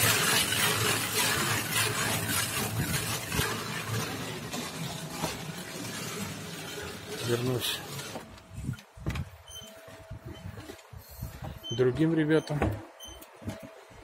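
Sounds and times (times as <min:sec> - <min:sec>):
plastic float scraping plaster: 0:00.0 - 0:08.7.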